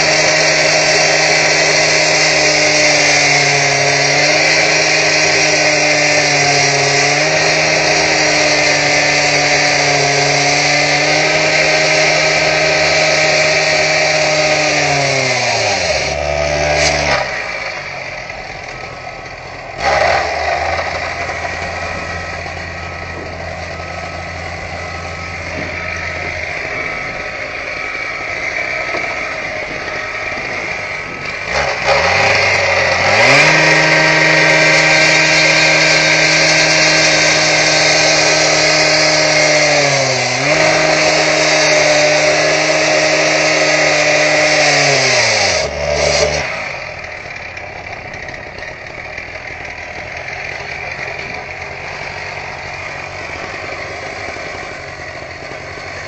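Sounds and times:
power saw cutting brick: 0.0 - 56.0
low hum: 20.5 - 31.9.

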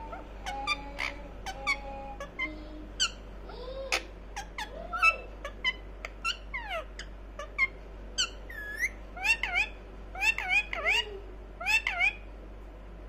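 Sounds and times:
parakeet chattering: 0.0 - 12.3.

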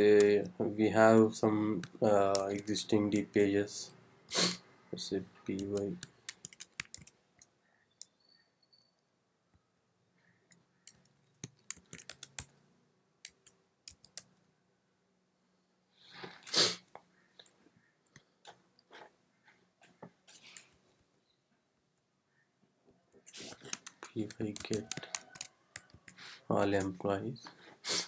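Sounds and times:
keyboard typing: 1.8 - 3.4, 5.5 - 8.2, 10.5 - 12.6, 13.2 - 14.4, 23.3 - 27.0.

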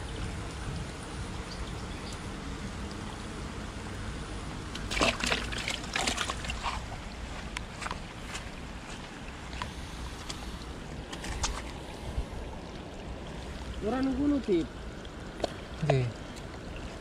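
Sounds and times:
fish splashing in bucket of water: 4.8 - 7.1.

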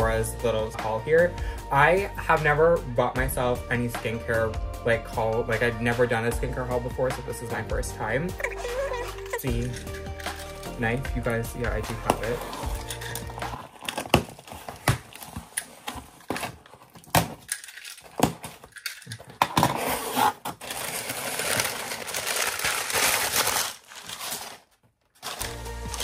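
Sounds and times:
paper packing crinkling: 8.4 - 10.7, 11.9 - 26.0
clicks and scrapes: 12.1 - 21.2.

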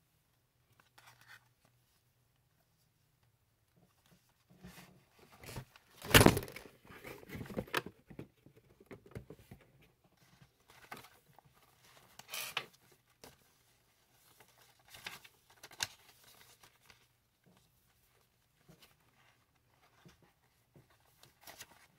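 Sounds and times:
paper pages rustling: 13.2 - 17.1.

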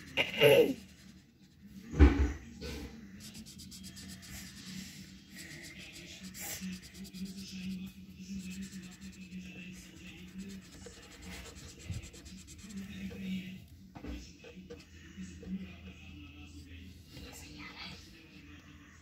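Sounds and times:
crayon scraping on paper: 0.0 - 1.8, 3.2 - 13.3.

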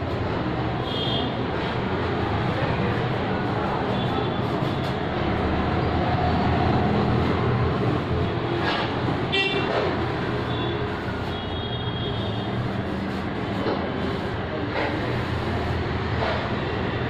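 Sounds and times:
rumble of passing vehicles: 0.0 - 17.0.

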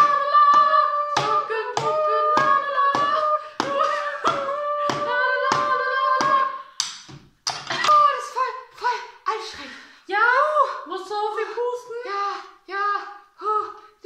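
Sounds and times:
person humming a tune: 0.0 - 6.6
wooden spoon beating box drum: 0.0 - 7.9.

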